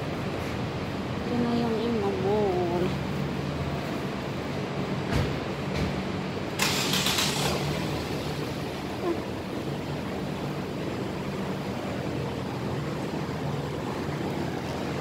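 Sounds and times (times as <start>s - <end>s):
low motor hum: 7.2s - 15.0s.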